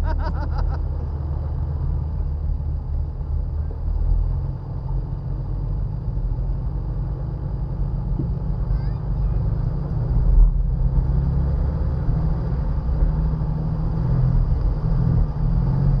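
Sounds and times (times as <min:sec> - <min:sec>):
car engine idling: 0:00.0 - 0:09.6.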